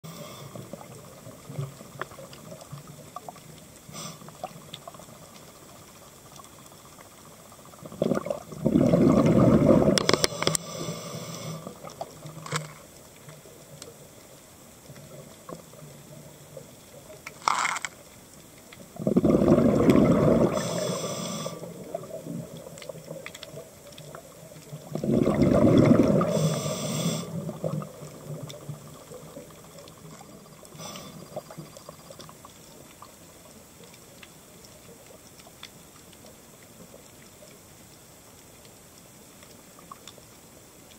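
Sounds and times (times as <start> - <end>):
gurgling exhaled bubbles: 7.6 - 10.6, 18.8 - 33.1
small clicks: 10.0 - 10.8, 11.8 - 14.0, 17.1 - 18.8
regulator hiss: 10.0 - 11.9, 20.4 - 22.0, 26.2 - 27.8, 30.6 - 31.6.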